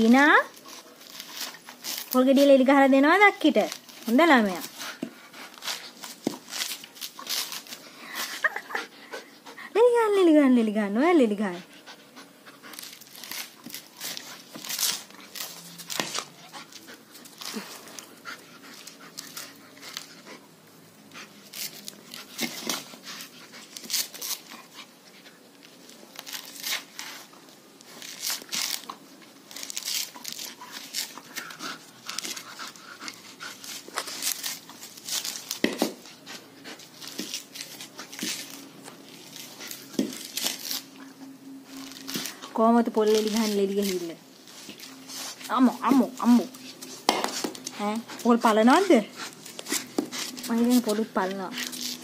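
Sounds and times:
dog crunching coconut husk: 0.0 - 10.1, 11.0 - 52.0
dog panting: 3.7 - 10.1, 11.3 - 25.5, 29.6 - 41.4, 44.5 - 52.0.

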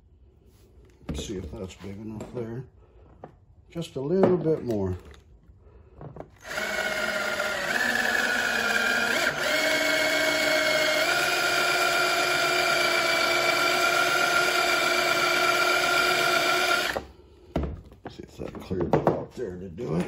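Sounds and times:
cordless drill motor whine: 6.4 - 17.1.

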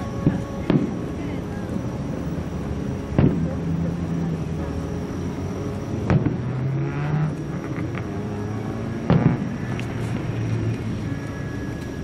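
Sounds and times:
steady low hum: 0.0 - 12.0
firework bangs: 0.2 - 1.2, 3.1 - 3.6, 6.0 - 8.1, 8.9 - 10.9.

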